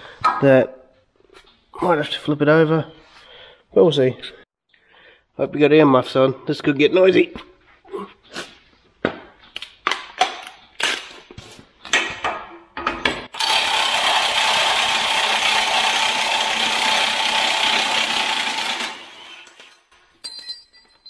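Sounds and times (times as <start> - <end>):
impact wrench running: 13.3 - 19.8
metal tools clattering: 19.5 - 21.0.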